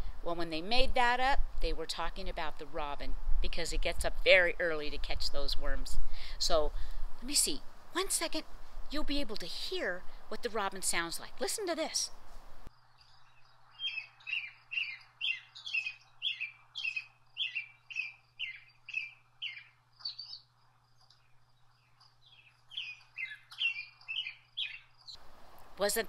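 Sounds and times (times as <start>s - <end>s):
robin singing: 8.1s - 25.2s.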